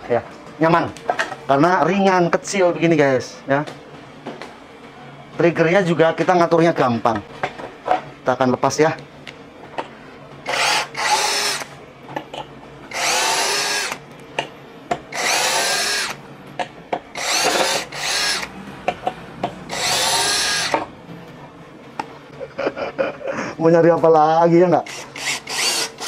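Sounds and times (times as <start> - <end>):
cordless drill motor whine: 10.5 - 11.7, 12.9 - 14.0, 15.1 - 16.2, 17.2 - 18.6, 19.7 - 20.9, 24.9 - 26.0.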